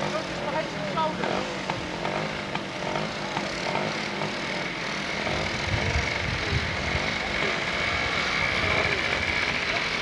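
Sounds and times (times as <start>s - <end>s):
quad bike engines running: 0.0s - 10.0s.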